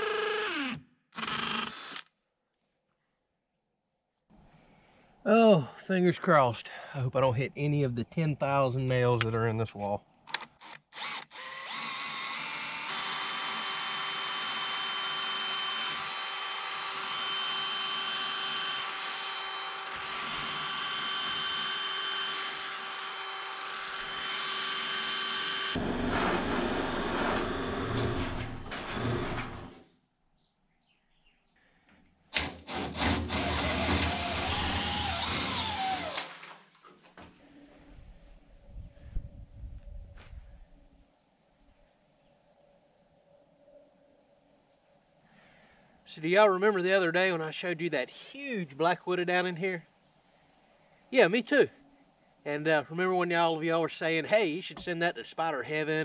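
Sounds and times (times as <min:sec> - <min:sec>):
cordless drill boring into wood: 0:00.0 - 0:02.1, 0:10.4 - 0:29.7, 0:32.4 - 0:36.5.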